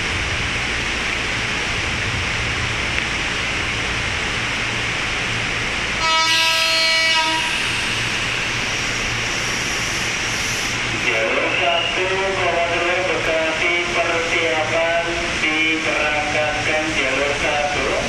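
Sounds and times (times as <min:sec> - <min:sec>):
electric train rumbling: 0:00.0 - 0:18.0
train horn blast: 0:06.0 - 0:08.8.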